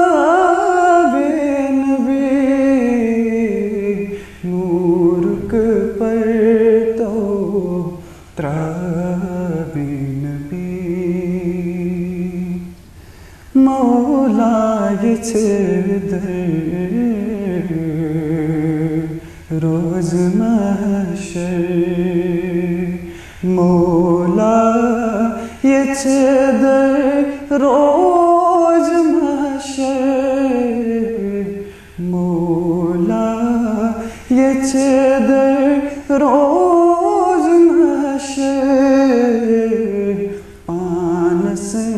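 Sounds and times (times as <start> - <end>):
person singing devotional song: 0.0 - 41.9
singer breathing: 4.1 - 4.4, 8.0 - 8.4, 12.9 - 13.6, 19.2 - 19.5, 23.0 - 23.4, 31.6 - 32.0, 34.0 - 34.3, 40.3 - 40.7.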